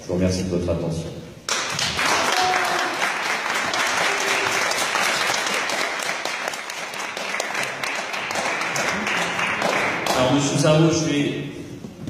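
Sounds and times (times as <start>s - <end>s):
crowd applauding: 1.5s - 10.8s.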